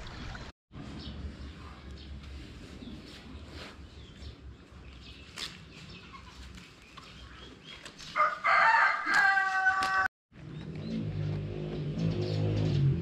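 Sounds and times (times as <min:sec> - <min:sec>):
rooster crowing: 0:08.2 - 0:10.1.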